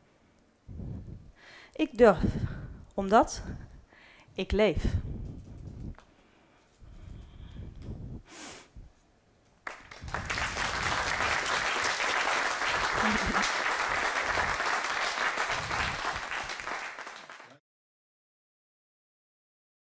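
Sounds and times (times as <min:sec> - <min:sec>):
audience applauding: 0:09.6 - 0:17.6.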